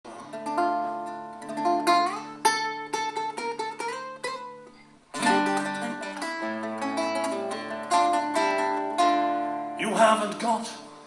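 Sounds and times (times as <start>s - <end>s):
picked acoustic guitar notes: 0.1s - 11.0s
strummed guitar chords: 0.1s - 11.0s.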